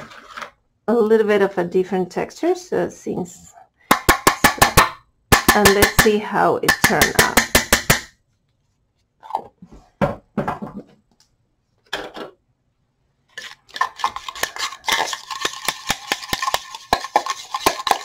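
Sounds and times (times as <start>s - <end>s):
metal knife scraping gritty paint: 13.4s - 18.0s.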